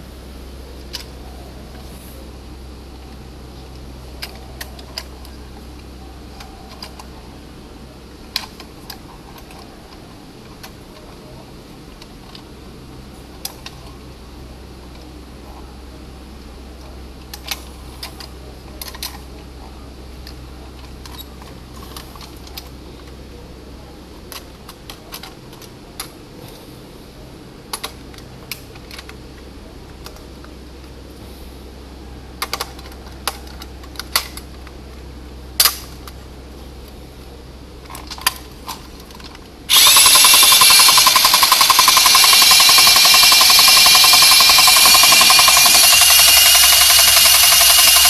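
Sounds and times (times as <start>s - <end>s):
clicks and knocks of tin toy: 39.2s - 48.0s
toy motor buzzing: 39.7s - 48.0s.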